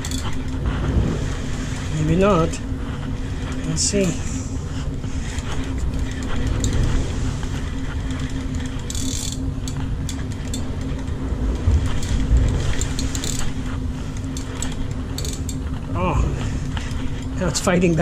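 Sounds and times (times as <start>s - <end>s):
fishing reel gears whirring: 0.0s - 18.0s
ship engine drone: 0.0s - 18.0s.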